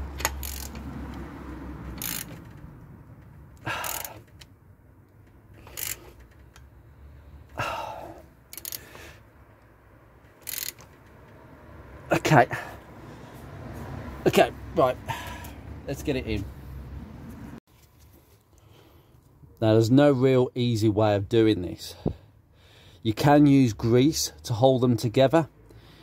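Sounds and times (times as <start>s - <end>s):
metallic clicks and scrapes: 0.0s - 7.6s, 8.4s - 9.0s, 10.2s - 11.4s.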